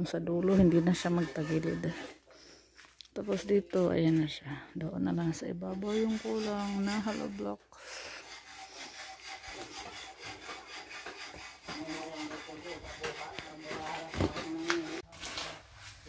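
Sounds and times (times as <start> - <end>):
hand tool scraping: 0.3 - 4.3, 5.1 - 16.0.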